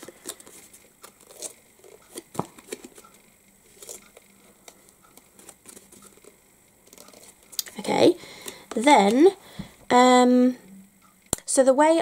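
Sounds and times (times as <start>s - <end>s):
cardstock rustling: 0.0s - 9.3s.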